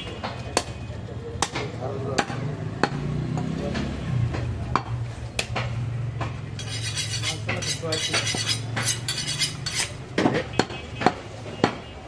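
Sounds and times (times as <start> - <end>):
metal blades clinking and scraping: 6.6 - 10.0.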